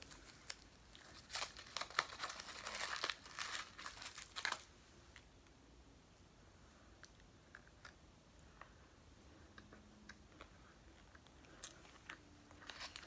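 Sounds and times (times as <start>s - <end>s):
candy wrapper crinkling: 0.0s - 4.7s, 11.0s - 13.0s.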